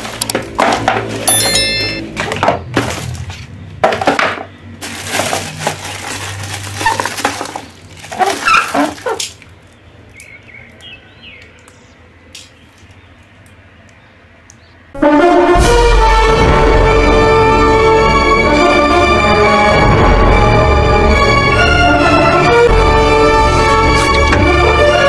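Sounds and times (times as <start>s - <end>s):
melodic music: 1.3s - 2.2s
cellophane crinkling: 4.8s - 9.9s.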